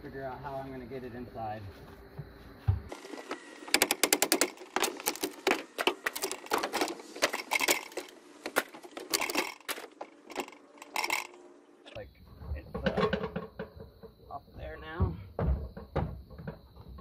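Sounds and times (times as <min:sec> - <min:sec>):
wooden crate cracking and creaking: 0:02.9 - 0:11.4.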